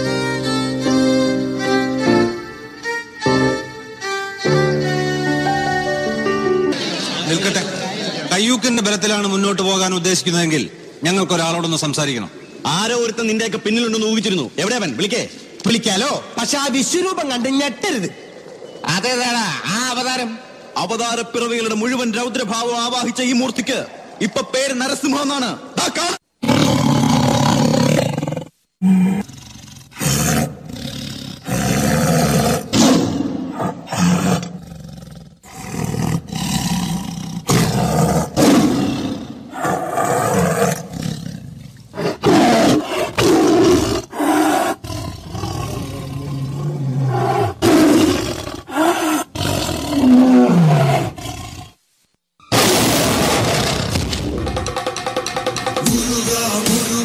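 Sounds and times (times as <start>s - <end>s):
tiger roars over loudspeakers: 42.0s - 51.7s.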